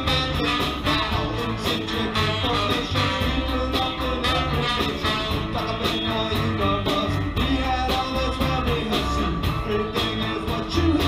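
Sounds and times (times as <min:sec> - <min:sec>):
saxophone: 0:00.0 - 0:06.2
bass line: 0:00.0 - 0:11.0
electric guitars: 0:00.0 - 0:11.0
trombone: 0:00.0 - 0:11.0.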